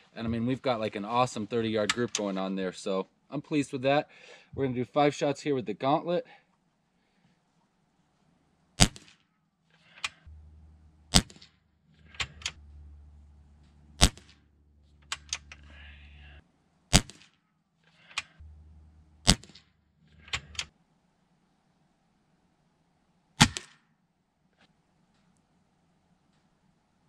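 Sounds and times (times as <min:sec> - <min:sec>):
air rifle shots: 0:08.8 - 0:09.2, 0:14.0 - 0:14.4, 0:16.9 - 0:17.3, 0:23.4 - 0:23.7.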